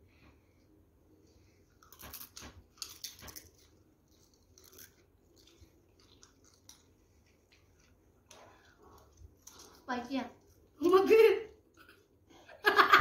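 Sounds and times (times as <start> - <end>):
potato chips crunching: 1.8 - 6.9.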